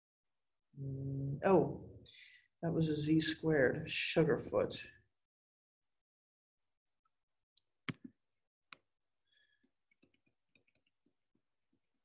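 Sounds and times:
stylus tapping on tablet screen: 0:07.9 - 0:08.8.

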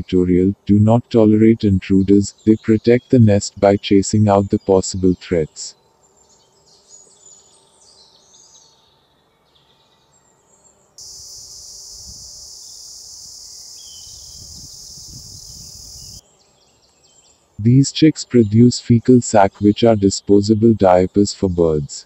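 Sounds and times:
faint high bird chirps: 0:06.1 - 0:17.4
cicada buzzing: 0:11.0 - 0:16.3.

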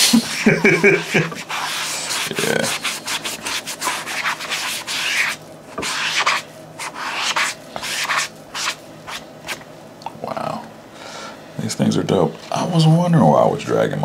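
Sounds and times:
rubbing and scraping on sneaker: 0:00.2 - 0:09.6.

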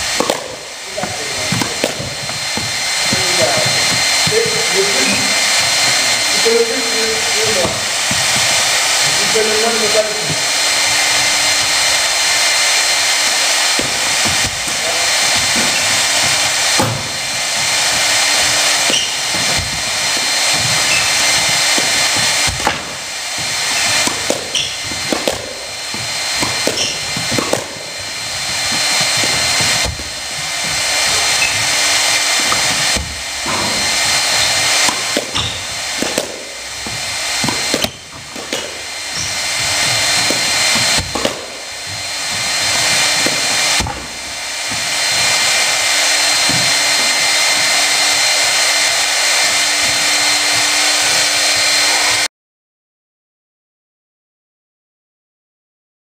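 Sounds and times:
loud rushing hiss: 0:00.0 - 0:52.3
squash ball knocks: 0:00.2 - 0:04.4, 0:10.3 - 0:50.0.

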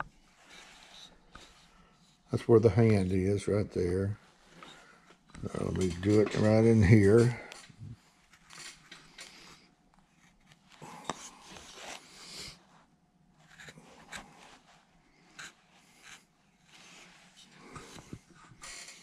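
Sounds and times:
carving tool scraping wood: 0:13.5 - 0:14.4, 0:15.3 - 0:16.3.

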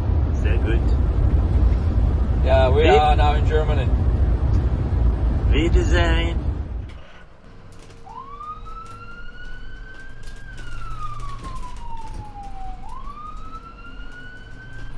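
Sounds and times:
low rumble: 0:00.0 - 0:14.9
siren wailing: 0:07.4 - 0:14.9.

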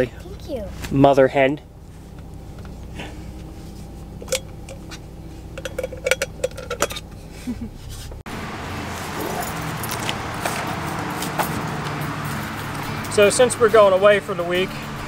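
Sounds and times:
outdoor background noise: 0:00.0 - 0:15.0
car cabin hum: 0:01.7 - 0:12.8
travel mug lid clinking: 0:04.2 - 0:07.1.

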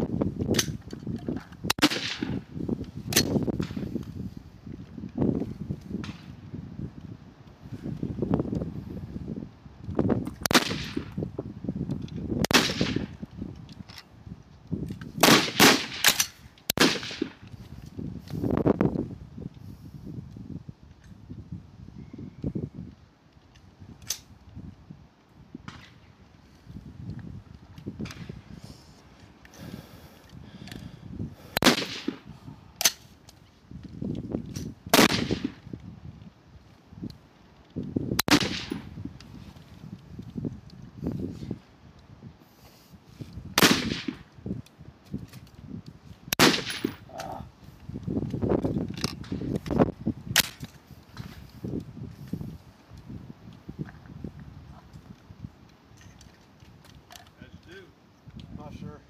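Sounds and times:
wind rumbling on microphone: 0:00.0 - 0:59.0
rifle shots with echo: 0:01.7 - 0:02.4, 0:10.5 - 0:11.1, 0:12.4 - 0:13.1, 0:15.2 - 0:17.4, 0:31.6 - 0:32.3, 0:34.9 - 0:35.6, 0:38.2 - 0:38.9, 0:43.6 - 0:44.2, 0:46.4 - 0:47.0.

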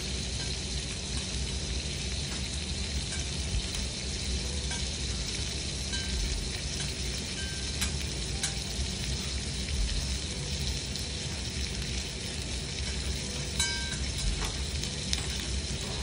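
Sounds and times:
beef sizzling on a griddle: 0:00.0 - 0:16.0.

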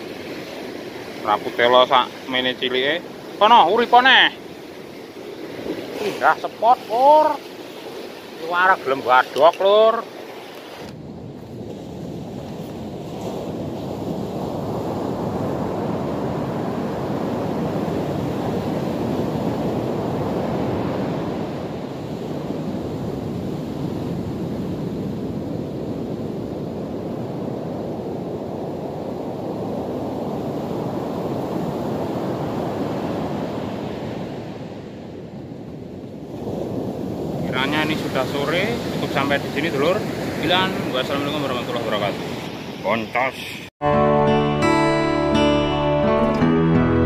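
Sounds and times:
ocean surf washing up beach: 0:00.0 - 0:43.7
wind buffeting microphone: 0:10.6 - 0:42.8.

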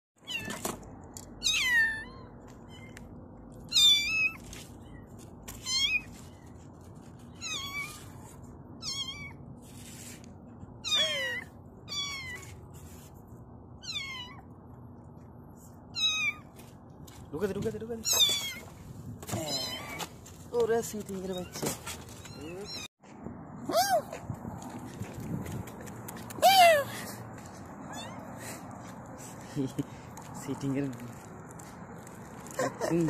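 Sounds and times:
kitten mewing: 0:10.8 - 0:12.4.

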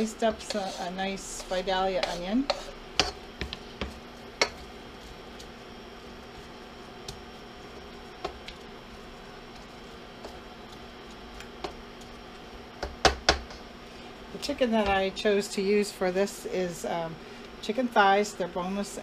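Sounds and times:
onions sizzling in a pan: 0:00.0 - 0:19.0
steady hum: 0:00.0 - 0:19.0
spatula knocking against pan: 0:12.8 - 0:13.6.

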